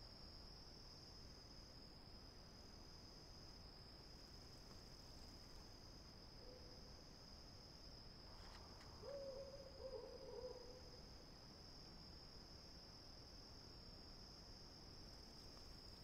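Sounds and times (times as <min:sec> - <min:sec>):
faint high-pitched whine: 0:00.0 - 0:16.0.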